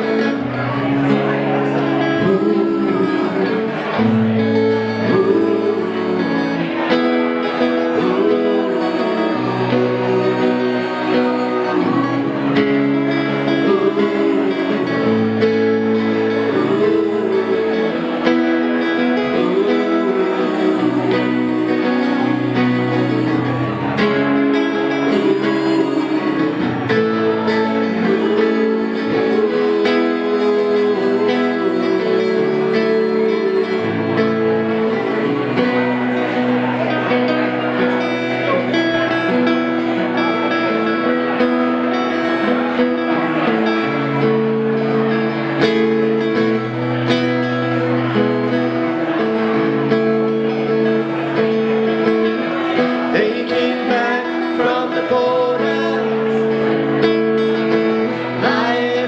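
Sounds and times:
woman singing: 0:00.0 - 0:36.3
acoustic guitars strumming: 0:00.0 - 0:59.0
man singing: 0:00.0 - 0:59.0.

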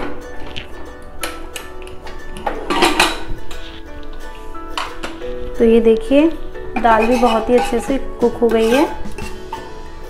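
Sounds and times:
background music with held notes: 0:00.0 - 0:10.0.

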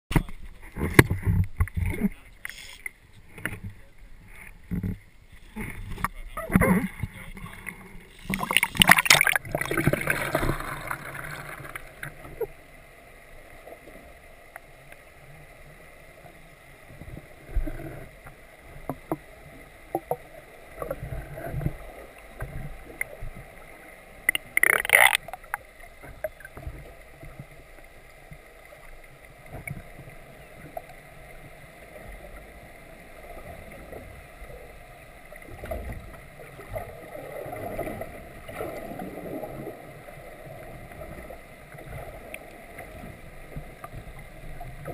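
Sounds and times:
loud splashes: 0:08.3 - 0:11.6.

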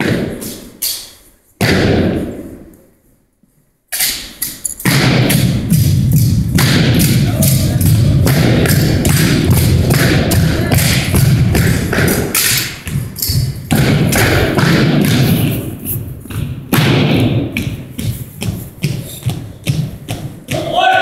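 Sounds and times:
sharp thuds stomps and slaps: 0:01.6 - 0:02.5, 0:04.8 - 0:20.7.

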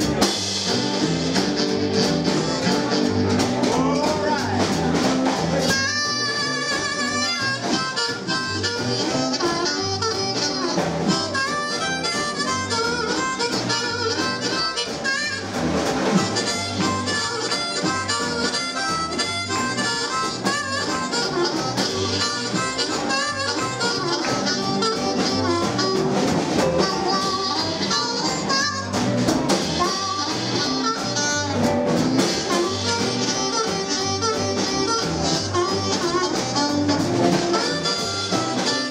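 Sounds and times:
drum kit shuffle: 0:00.0 - 0:38.9
electric guitar: 0:00.0 - 0:38.9
harmonica solo: 0:00.0 - 0:38.9
upright double bass: 0:00.0 - 0:38.9.

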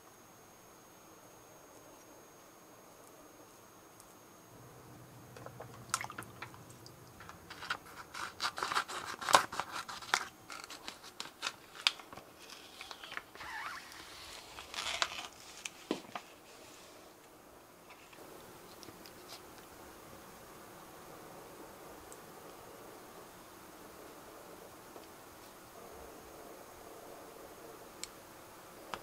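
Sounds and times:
plastic pouch crinkling: 0:07.2 - 0:16.4.

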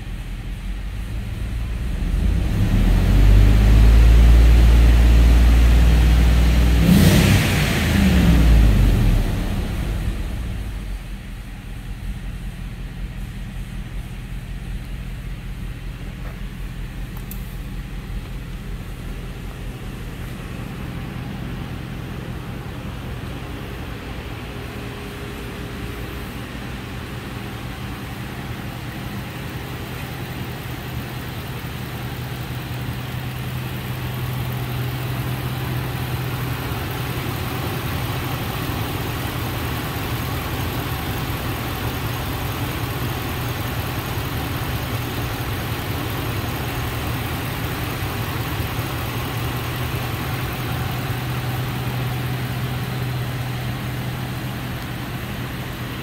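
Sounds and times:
v eight engine idling: 0:00.0 - 0:56.0.

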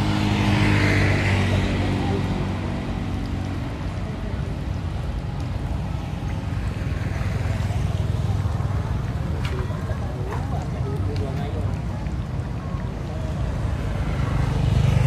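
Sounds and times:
vehicle engine passing: 0:00.0 - 0:10.3.

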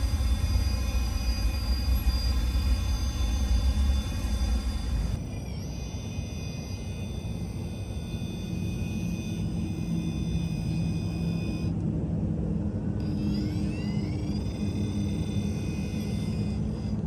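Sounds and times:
low rumble: 0:00.0 - 0:05.2
electric motor whining: 0:00.0 - 0:11.8, 0:13.0 - 0:17.0.

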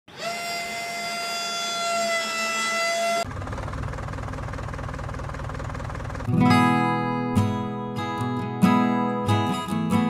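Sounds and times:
small electric motor whining: 0:00.1 - 0:03.7.

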